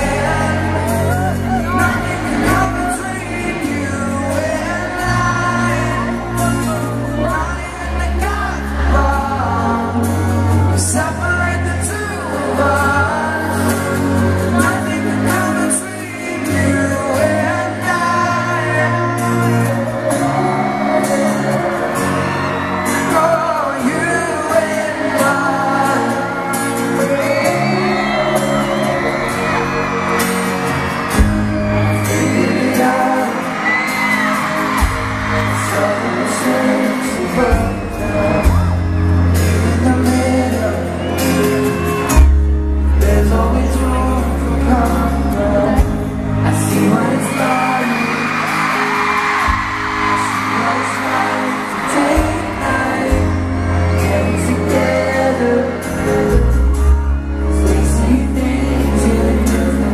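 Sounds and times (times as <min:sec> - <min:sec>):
men singing pop ballad: 0:00.0 - 0:30.0, 0:31.1 - 0:41.8, 0:42.9 - 0:59.9
band with sustained bass: 0:34.6 - 0:47.4, 0:52.1 - 0:59.9.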